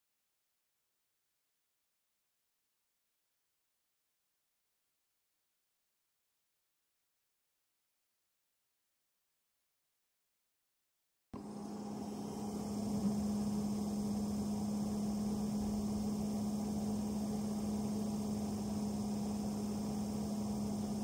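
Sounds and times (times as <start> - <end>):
blower fan humming with rushing air: 11.4 - 21.0.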